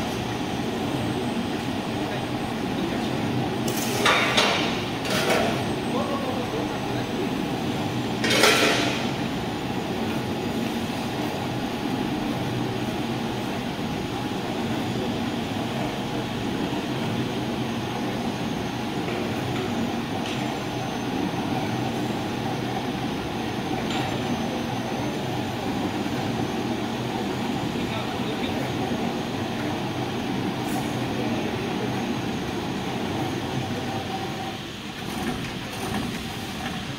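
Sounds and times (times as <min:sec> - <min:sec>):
wrapping machine mechanical hum: 0:00.0 - 0:36.9.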